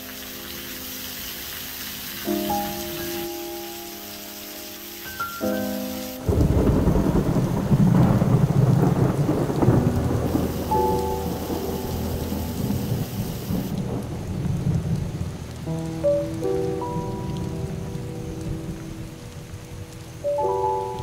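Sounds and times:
heavy rain pouring: 0.0s - 21.0s
deep thunder rumble: 6.2s - 19.8s.

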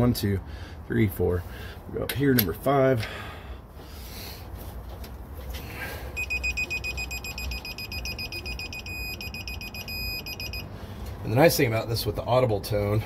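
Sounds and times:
torque wrench beeping: 6.2s - 10.7s.

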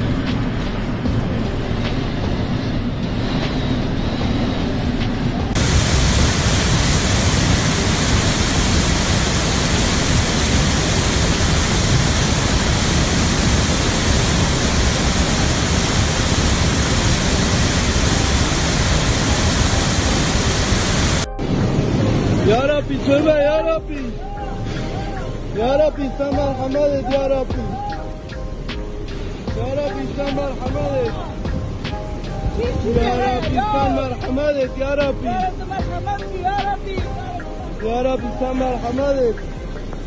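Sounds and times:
low rumble aboard ship: 0.0s - 40.0s
floodwater rushing: 5.0s - 21.3s.

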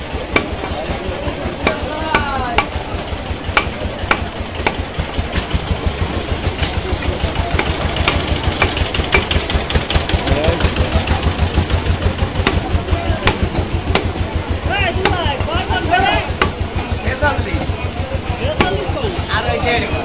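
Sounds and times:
engine rumbling: 0.0s - 20.0s
cleaver chopping on wooden block: 0.3s - 0.8s, 1.5s - 2.8s, 3.5s - 5.2s, 7.5s - 9.8s, 11.1s - 14.2s, 15.0s - 15.4s, 16.1s - 16.6s.

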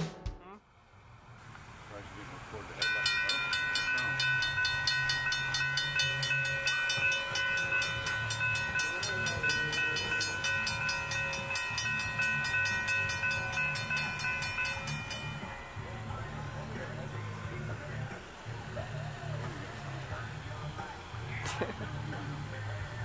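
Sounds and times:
railroad crossing bell ringing: 2.5s - 23.0s.

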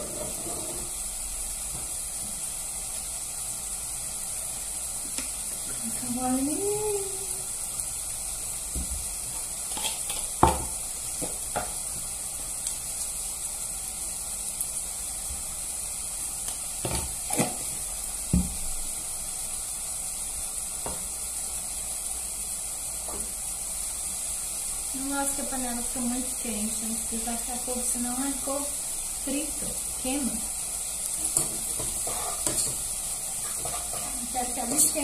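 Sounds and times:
food sizzling in a frying pan: 0.0s - 35.0s.

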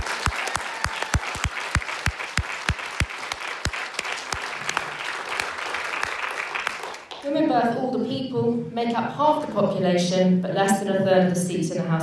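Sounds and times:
person clapping close by: 0.0s - 7.2s
audience applauding: 0.0s - 7.3s.

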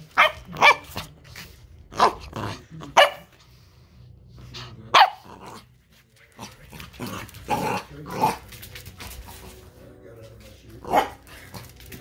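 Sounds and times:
puppy barking: 0.1s - 1.0s, 2.9s - 3.4s, 4.9s - 5.6s, 10.9s - 11.2s.

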